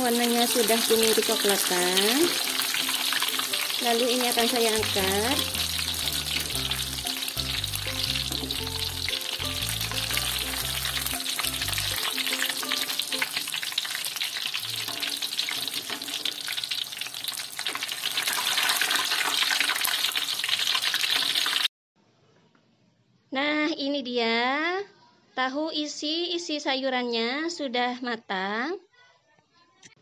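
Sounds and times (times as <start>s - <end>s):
background music: 0.0s - 14.2s
hot oil sizzling and crackling: 0.0s - 21.7s.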